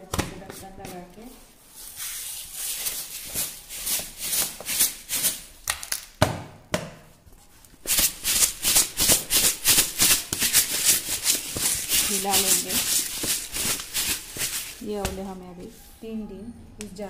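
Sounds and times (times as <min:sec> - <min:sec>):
sugar rattling in shaken jar: 0:07.9 - 0:14.8.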